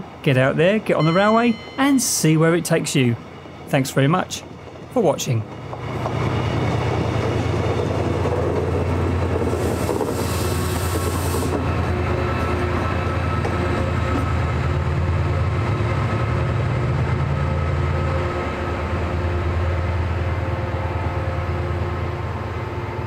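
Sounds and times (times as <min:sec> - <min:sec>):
diesel locomotive engine drone: 0:00.0 - 0:23.0
train rumble: 0:00.0 - 0:23.0
burst of hiss: 0:09.6 - 0:11.6.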